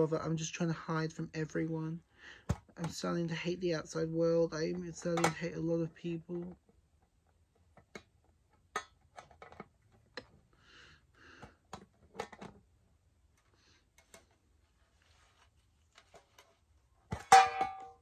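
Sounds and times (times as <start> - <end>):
soft rustles: 13.3 - 17.0.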